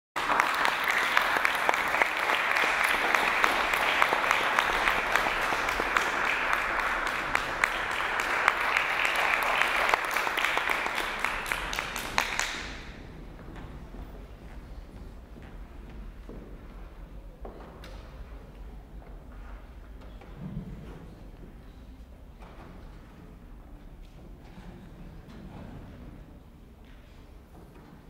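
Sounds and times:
audience applauding: 0.2 - 13.0.

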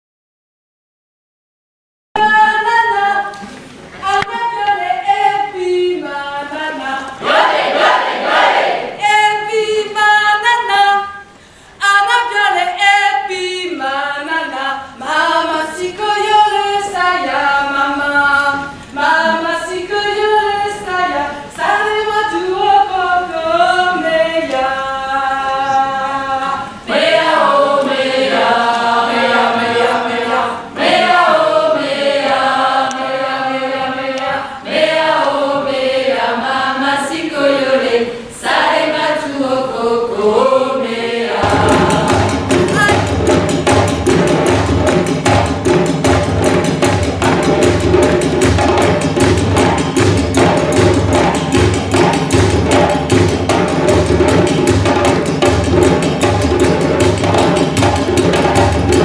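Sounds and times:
group of women singing: 2.2 - 43.6.

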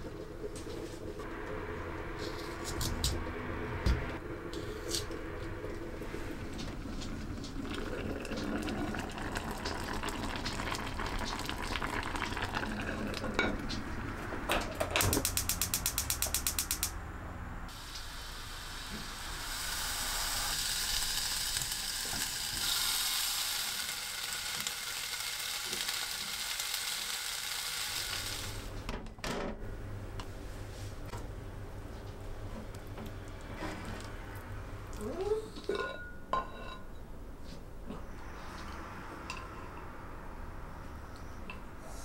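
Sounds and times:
rapid clicks: 15.2 - 16.9
food sizzling in a frying pan: 17.7 - 28.7.

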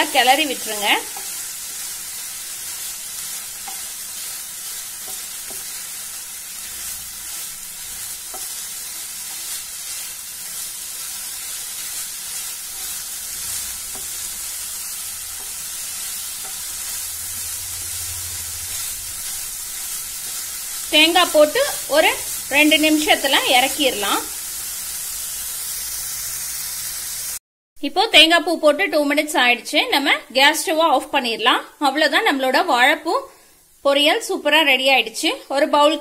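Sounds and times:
food sizzling in a pan: 0.0 - 27.4, 29.9 - 36.0
wooden spatula scraping: 0.5 - 22.7.

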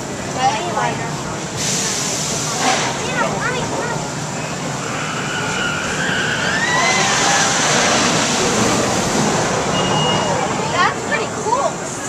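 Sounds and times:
ride train rushing along track: 0.0 - 12.0.

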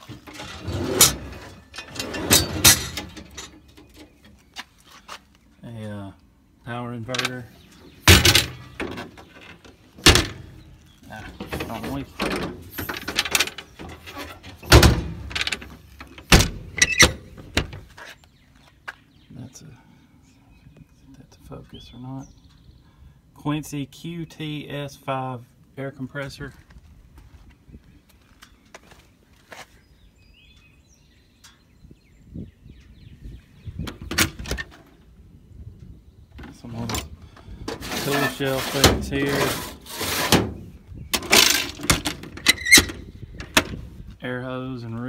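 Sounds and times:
metal doors rattling and scraping: 0.0 - 4.3, 7.1 - 18.0, 33.8 - 35.0, 36.4 - 44.0
doors and latches clunking: 0.0 - 4.4, 7.1 - 17.9, 33.8 - 34.9, 36.4 - 43.8
metal door thump: 8.0 - 9.2, 10.0 - 10.7, 11.3 - 17.8.

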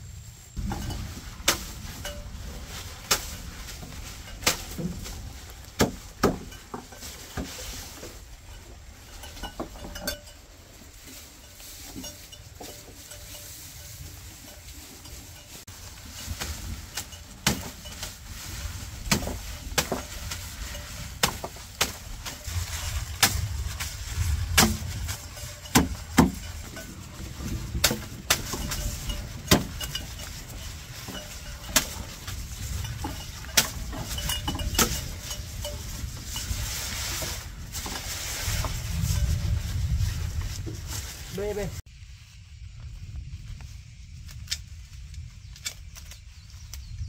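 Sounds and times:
low rumble: 14.1 - 45.6.

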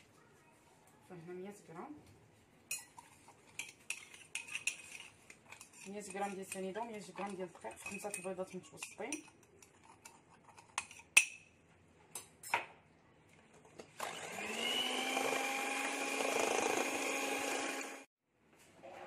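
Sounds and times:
electric hand mixer whine: 14.0 - 18.1.

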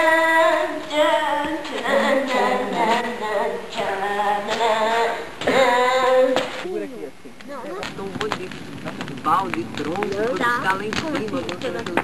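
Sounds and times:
high voice singing unaccompanied: 0.0 - 6.6.

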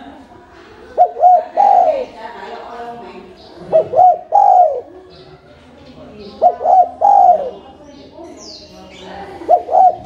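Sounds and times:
dove cooing: 0.9 - 2.2, 3.6 - 5.0, 6.4 - 7.7, 9.4 - 10.0.

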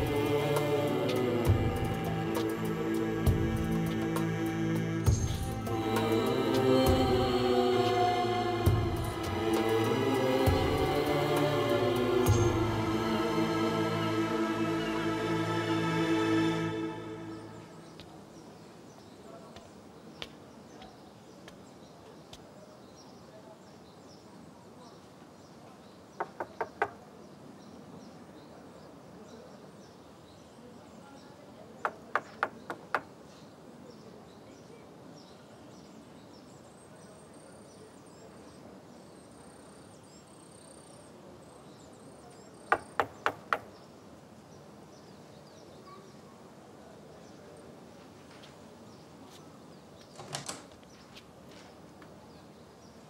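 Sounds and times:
knocking on a door: 26.2 - 27.0, 42.7 - 43.7.

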